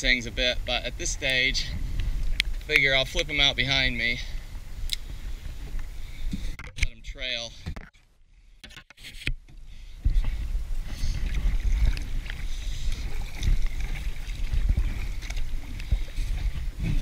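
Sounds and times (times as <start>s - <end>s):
paddle stroking through water: 10.0s - 17.0s
water rushing along hull: 10.0s - 17.0s.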